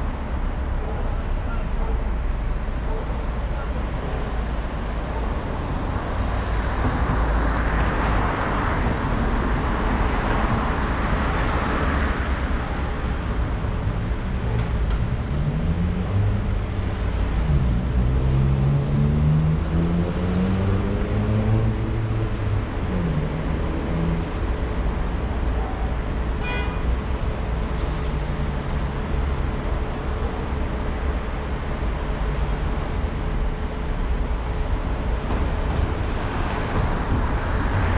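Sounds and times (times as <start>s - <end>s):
car engine and road rumble: 0.0s - 37.9s
tyre and traffic noise: 0.0s - 37.9s.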